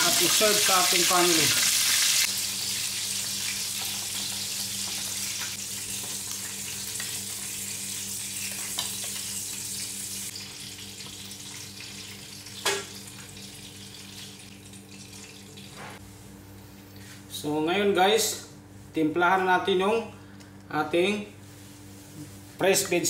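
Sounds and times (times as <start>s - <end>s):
fish sizzling in hot oil: 0.0s - 15.6s.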